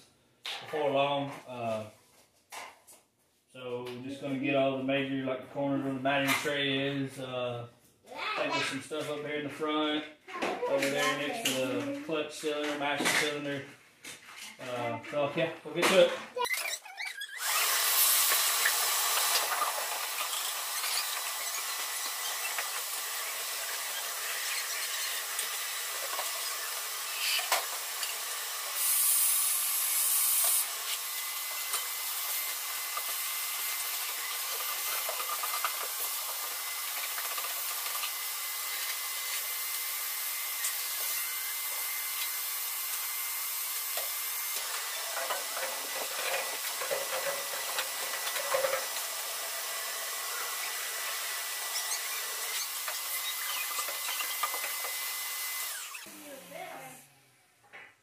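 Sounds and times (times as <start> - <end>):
shop vacuum running: 17.4 - 57.6.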